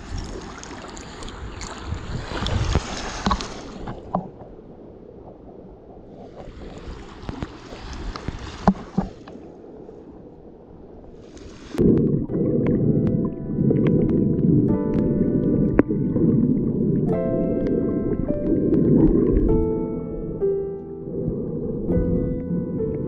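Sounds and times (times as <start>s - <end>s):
water sloshing and gurgling: 0.0s - 23.0s
background music: 12.2s - 23.0s.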